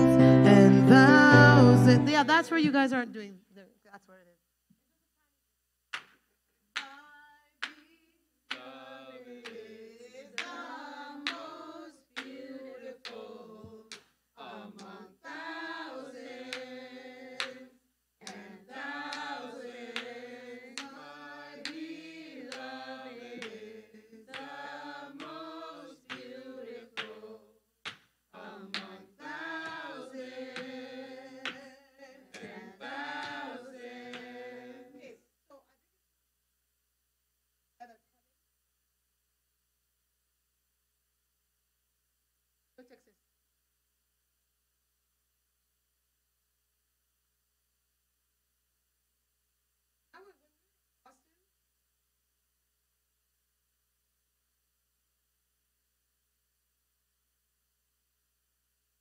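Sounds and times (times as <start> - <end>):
choir singing a cappella: 0.0 - 2.2, 7.7 - 27.6, 28.3 - 35.2
sharp hand claps: 5.9 - 7.0, 7.6 - 7.9, 10.4 - 10.6, 11.2 - 11.4, 12.2 - 12.4, 17.4 - 17.6, 19.9 - 20.2, 23.4 - 23.6, 24.3 - 24.6, 26.0 - 26.3, 27.0 - 27.2, 27.8 - 28.9, 31.4 - 31.7.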